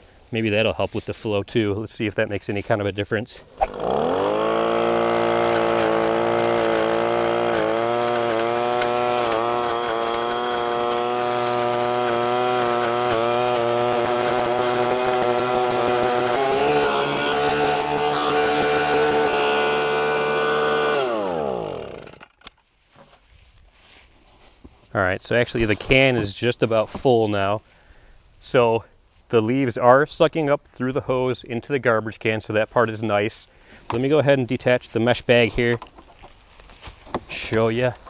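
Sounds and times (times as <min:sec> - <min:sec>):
leaves being sucked up: 0:03.4 - 0:21.6
leaf blower vacuum engine: 0:03.5 - 0:22.3.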